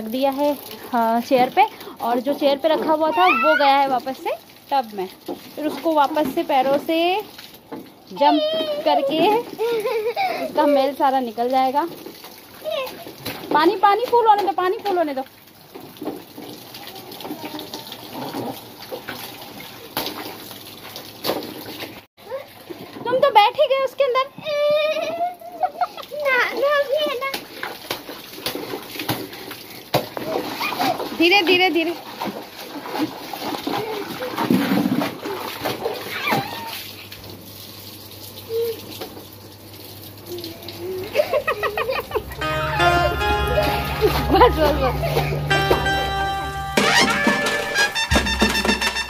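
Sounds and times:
sharp water splashes: 0.0s - 8.1s, 9.2s - 22.9s, 26.0s - 49.0s
water running into a tub: 0.0s - 49.0s
water sloshing: 26.2s - 37.5s.

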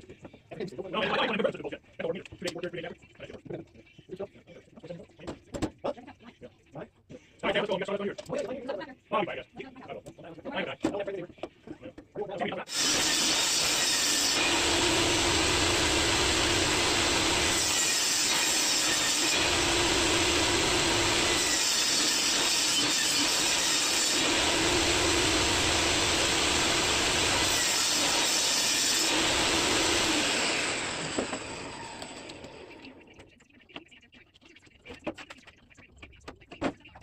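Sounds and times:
table saw cutting plywood: 12.7s - 32.9s.

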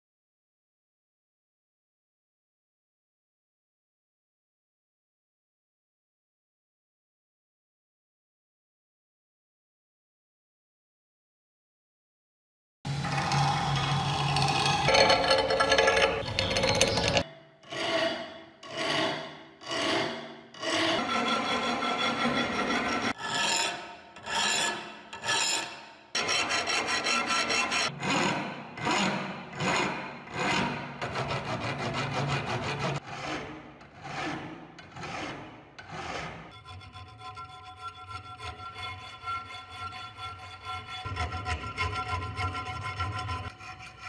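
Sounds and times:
file rasping on metal: 13.0s - 44.0s.

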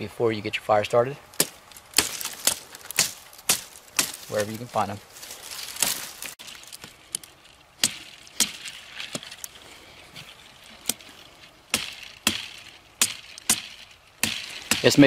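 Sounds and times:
knife chopping into branch: 1.3s - 9.5s, 10.8s - 15.0s.

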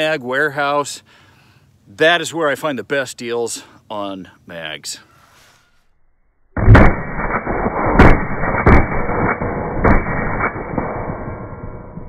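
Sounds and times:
rifle gunshots: 6.6s - 11.8s.

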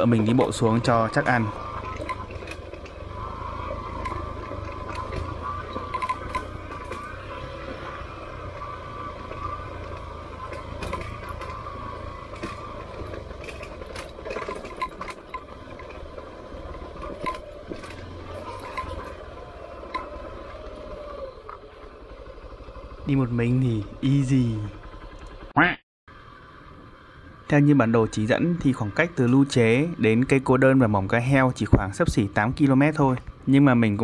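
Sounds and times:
dirt bike engine running: 0.0s - 25.5s.

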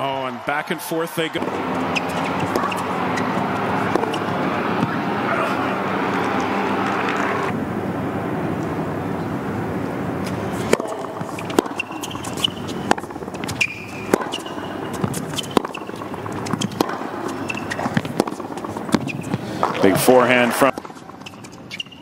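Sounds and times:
crowd murmur: 0.0s - 11.3s
sneakers squeaking: 1.3s - 7.5s, 10.2s - 22.0s
tennis ball bouncing: 1.3s - 7.5s, 10.2s - 22.0s
tennis racket striking ball: 1.4s - 7.5s, 10.6s - 19.8s.

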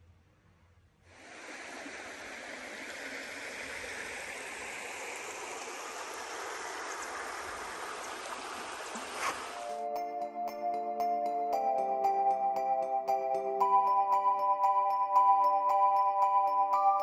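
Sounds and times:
stream water rushing: 1.1s - 9.8s.

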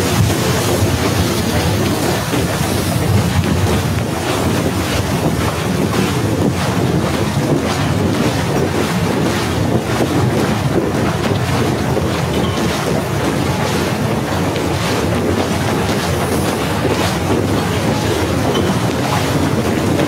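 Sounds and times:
wind blowing across microphone: 0.0s - 20.0s.

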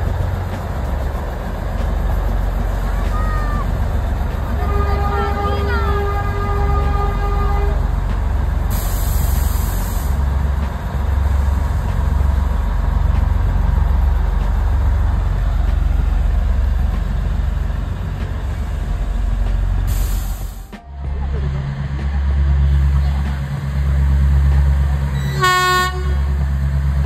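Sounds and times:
diesel locomotive engine rumbling: 0.0s - 27.0s
locomotive horn: 4.5s - 8.0s, 25.1s - 26.5s
short high hiss: 8.7s - 10.2s, 19.9s - 20.7s.

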